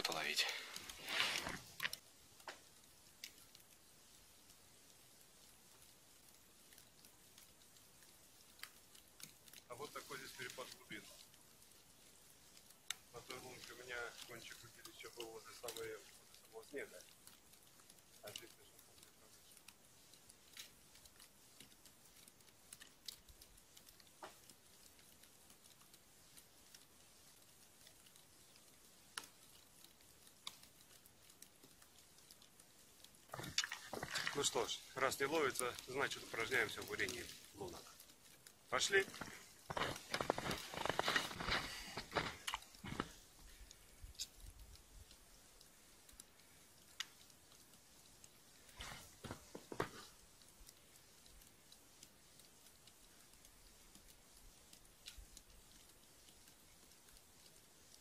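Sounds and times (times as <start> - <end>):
faint light ticks and clicks: 0.0 - 58.0
boots crunching through snow: 1.0 - 1.7, 38.9 - 43.1.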